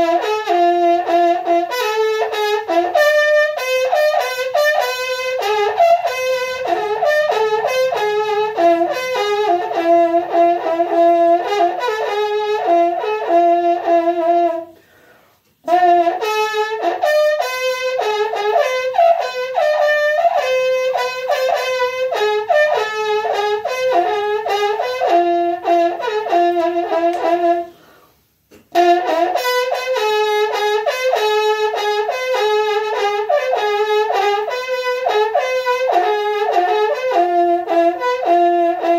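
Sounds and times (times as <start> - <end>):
plant stalk trumpet playing: 0.0 - 38.9.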